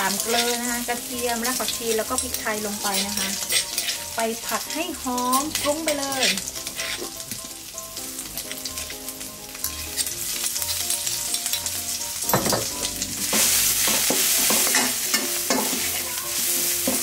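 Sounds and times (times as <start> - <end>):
steel spatula scraping a wok: 0.0 - 7.2, 9.6 - 11.6, 13.2 - 17.0
paste sizzling in hot oil: 0.0 - 17.0.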